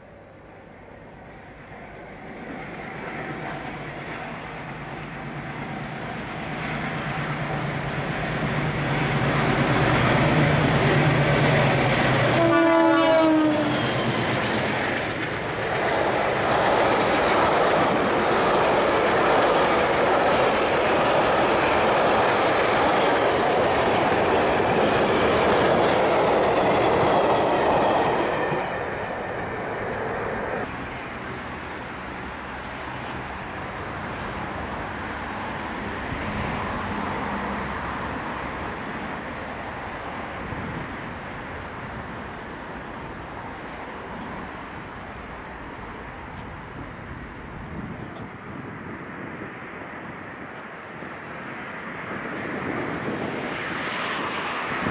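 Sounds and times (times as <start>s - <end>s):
locomotive engine drone: 0.1s - 48.3s
train horn blast: 12.2s - 14.2s.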